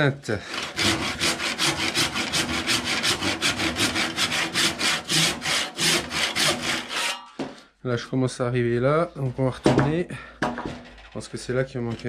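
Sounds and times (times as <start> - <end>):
hand saw cutting wood: 0.4 - 7.5.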